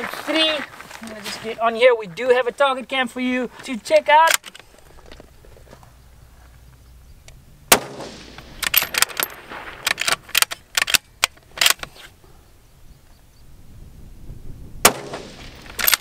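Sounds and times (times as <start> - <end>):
rifle shot: 7.7 - 10.2, 14.8 - 16.0
rifle bolt clicking: 8.6 - 11.9, 15.8 - 16.0.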